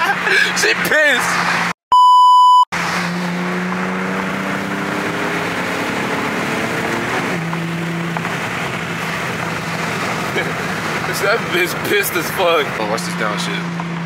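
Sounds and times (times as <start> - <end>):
censor bleep: 1.9 - 2.7
car engine droning: 2.8 - 14.0.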